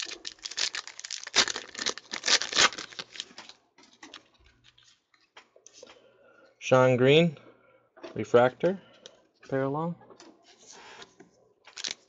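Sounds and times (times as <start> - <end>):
foil wrapper crinkling: 0.0 - 3.6, 11.7 - 12.0.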